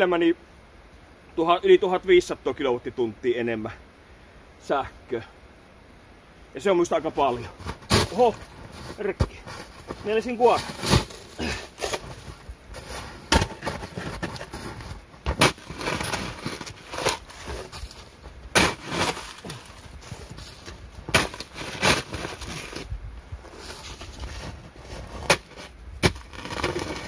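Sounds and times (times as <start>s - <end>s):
shovel scraping into snow: 7.4s - 27.0s.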